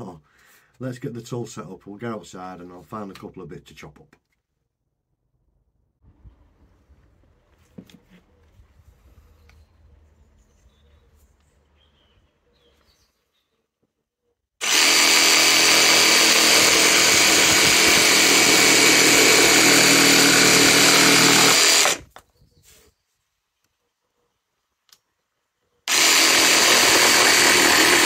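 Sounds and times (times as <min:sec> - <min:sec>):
cordless jigsaw sawing wood: 0:14.6 - 0:22.1, 0:25.9 - 0:28.0.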